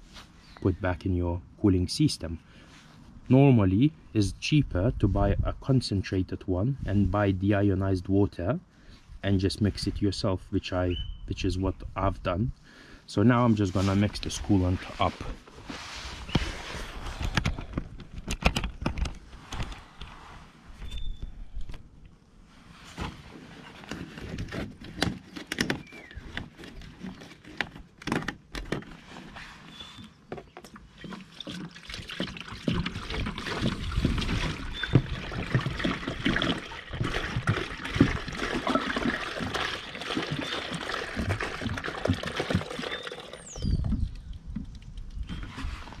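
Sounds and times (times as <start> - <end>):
containers clicking and knocking: 30.4 - 43.6
liquid pouring: 31.1 - 43.7.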